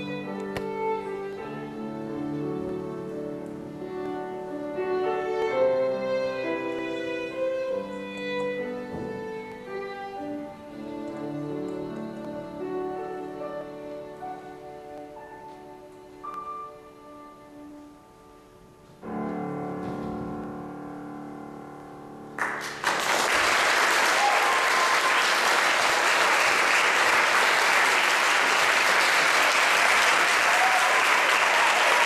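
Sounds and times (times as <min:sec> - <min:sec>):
audience applause: 0:22.4 - 0:32.0.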